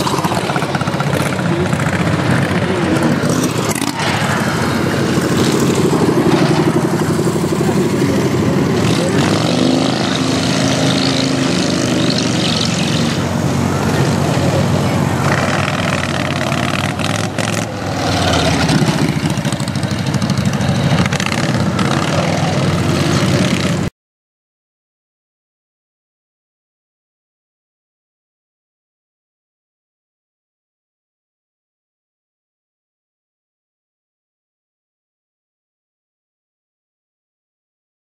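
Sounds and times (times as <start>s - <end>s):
racing lawn tractor engines: 0.0s - 23.9s.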